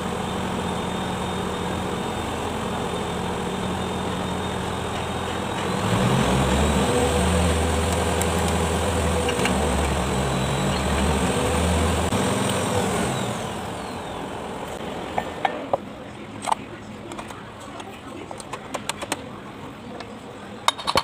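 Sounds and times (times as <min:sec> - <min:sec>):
vehicle engine running: 0:00.0 - 0:16.1.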